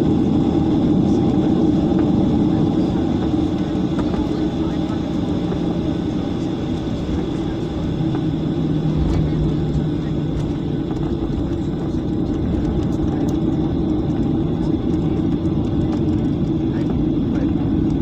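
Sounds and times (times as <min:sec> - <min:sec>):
jet engines humming: 0:00.0 - 0:18.0
low rumble: 0:07.1 - 0:15.8.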